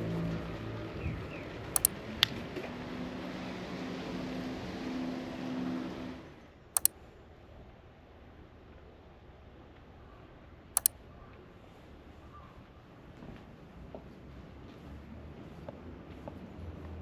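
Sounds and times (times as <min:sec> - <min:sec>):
sharp clicks: 0:01.8 - 0:02.3, 0:06.8 - 0:07.0, 0:10.8 - 0:11.0.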